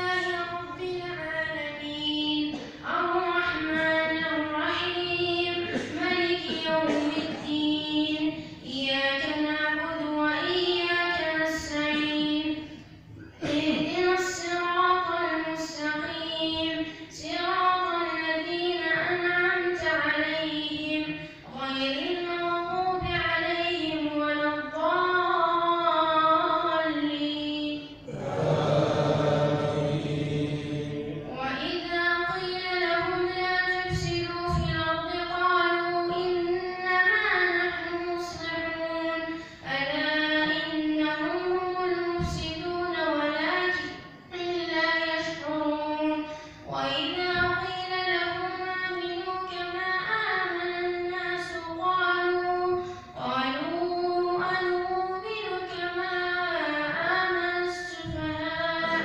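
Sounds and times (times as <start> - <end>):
boy chanting melodically: 0.0 - 59.0.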